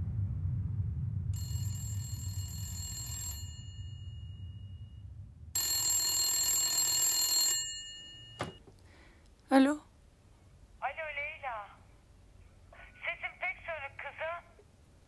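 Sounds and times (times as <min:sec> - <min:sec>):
telephone ringing: 0:01.4 - 0:04.7, 0:05.6 - 0:08.6.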